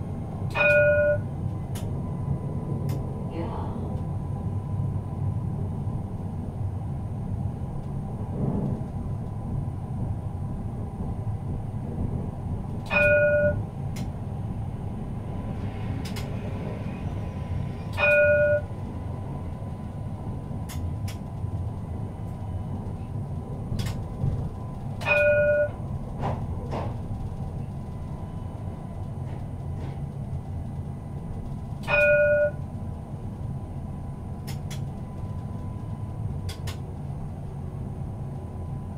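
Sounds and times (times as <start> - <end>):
tram rumbling: 0.0 - 38.9
tram warning gong chime: 0.2 - 1.5, 12.8 - 13.8, 16.6 - 20.4, 24.6 - 26.3, 31.0 - 32.9.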